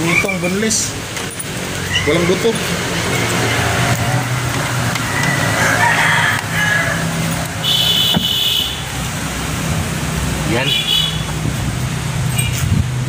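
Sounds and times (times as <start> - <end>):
pitched animal calls: 1.8 - 4.2.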